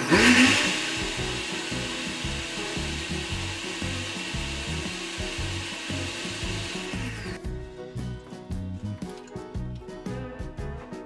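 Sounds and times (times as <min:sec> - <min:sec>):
blender running: 0:00.0 - 0:07.4.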